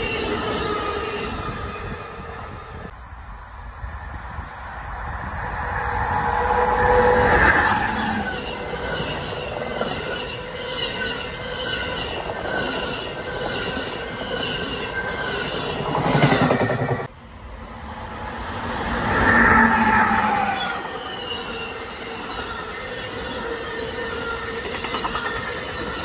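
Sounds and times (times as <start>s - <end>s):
train wheels rushing on rail: 3.8s - 26.0s
wheel squeal: 5.8s - 16.4s, 19.1s - 26.0s.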